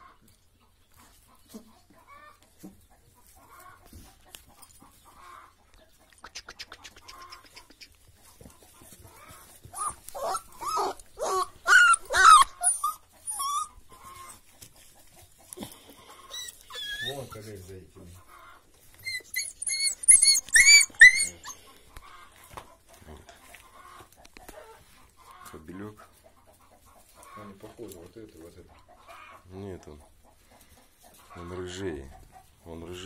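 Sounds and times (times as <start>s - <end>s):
puppies whining and yelping: 8.8s - 17.7s, 18.3s - 22.4s, 23.5s - 25.0s.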